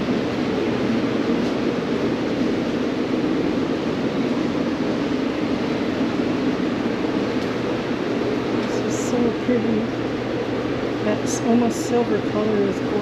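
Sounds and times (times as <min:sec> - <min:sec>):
ventilation fans rushing: 0:00.0 - 0:13.0.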